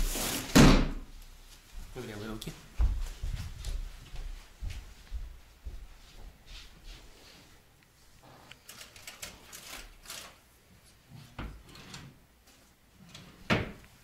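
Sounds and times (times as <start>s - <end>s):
small clicks and rattles: 8.5s - 10.4s.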